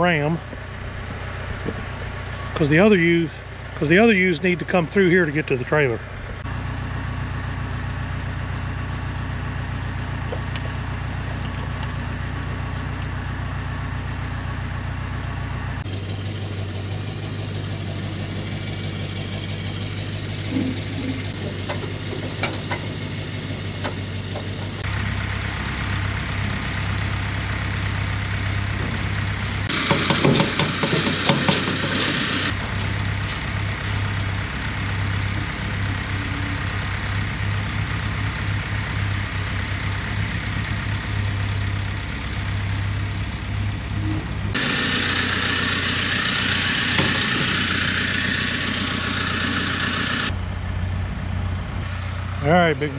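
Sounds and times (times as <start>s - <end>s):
truck engine idling: 0.0s - 52.9s
rattling noise: 26.4s - 34.2s.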